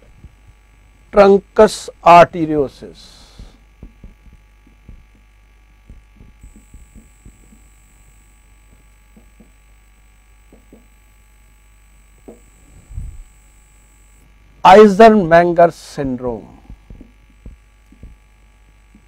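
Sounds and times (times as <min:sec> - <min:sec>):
low electrical hum: 0:00.0 - 0:19.0
thin high whine: 0:00.0 - 0:19.0
soft low thump: 0:03.4 - 0:09.6, 0:16.6 - 0:18.3.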